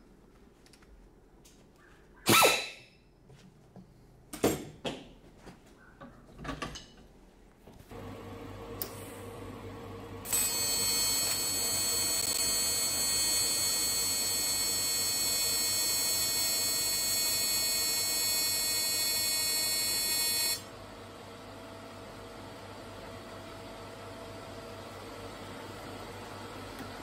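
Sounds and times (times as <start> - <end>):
welding arc buzzing: 10.2 - 20.6.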